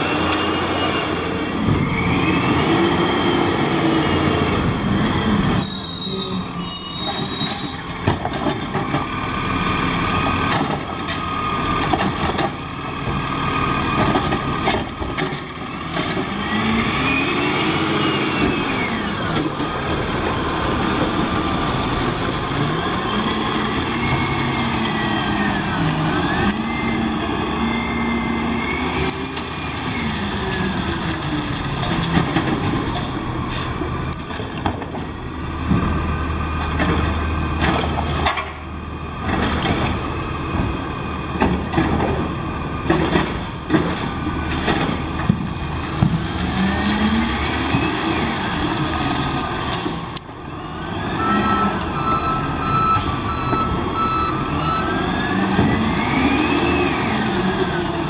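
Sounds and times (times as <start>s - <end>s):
diesel truck engine: 0.0s - 58.0s
reversing beeper: 5.3s - 8.7s, 49.7s - 57.1s.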